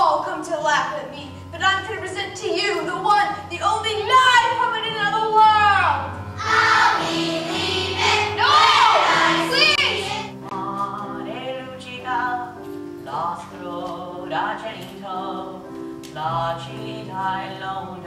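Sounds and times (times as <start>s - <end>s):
held instrumental accompaniment: 1.9s - 18.0s
young voices singing: 6.4s - 18.0s.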